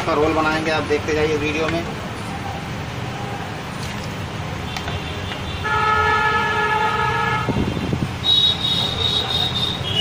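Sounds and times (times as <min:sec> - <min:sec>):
road traffic rumble: 0:00.0 - 0:10.0
vehicle horn honking: 0:04.8 - 0:10.0.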